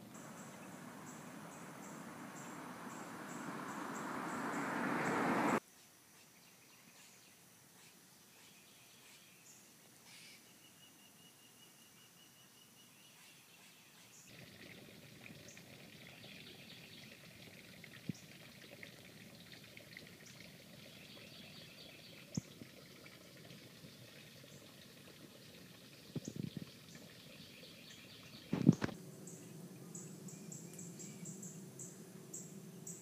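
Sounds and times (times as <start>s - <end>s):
birds calling: 0.0s - 5.6s, 26.0s - 33.0s
insects chirring: 0.0s - 5.6s, 28.5s - 33.0s.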